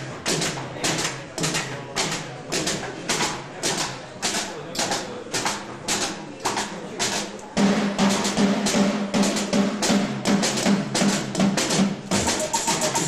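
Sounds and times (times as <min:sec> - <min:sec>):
percussion hits: 0:00.0 - 0:13.0
rapid drumming: 0:00.0 - 0:13.0
instrumental band with keyboards: 0:07.0 - 0:13.0.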